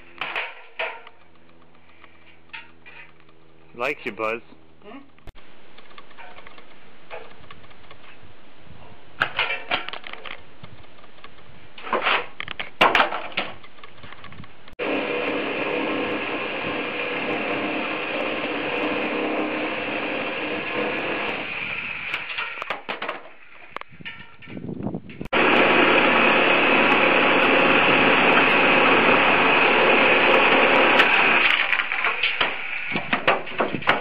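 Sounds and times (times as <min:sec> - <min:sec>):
knocks and clatters: 0:00.1 - 0:03.7, 0:09.2 - 0:14.8, 0:22.1 - 0:25.4, 0:30.8 - 0:34.0
power saw cutting wood: 0:14.8 - 0:22.6, 0:25.3 - 0:34.0.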